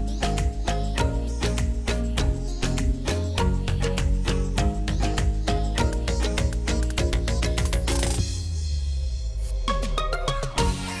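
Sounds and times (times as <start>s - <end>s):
steady bass line: 0.0s - 11.0s.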